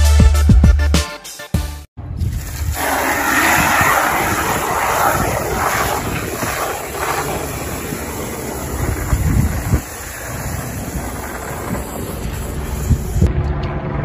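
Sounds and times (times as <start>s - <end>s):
wind rumbling on microphone: 2.0s - 14.0s
hose spraying water into bucket: 2.2s - 13.3s.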